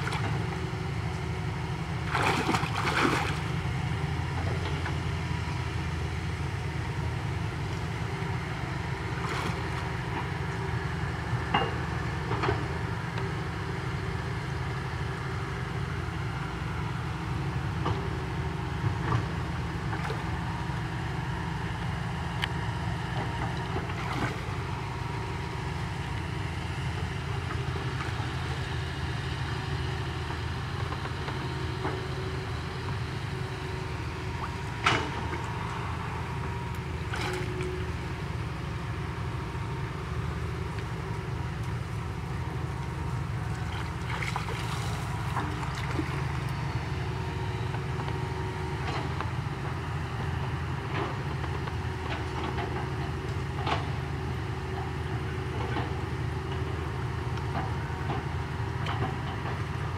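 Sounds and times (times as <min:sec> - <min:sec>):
low engine-like rumble: 0:00.0 - 0:59.9
water splashing: 0:02.0 - 0:03.6, 0:43.5 - 0:46.3.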